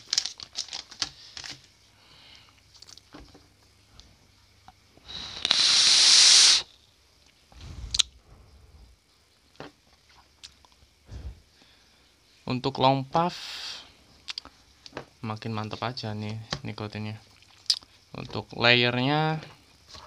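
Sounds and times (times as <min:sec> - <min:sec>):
hiss of air drawn through atomizer: 0:05.0 - 0:06.7.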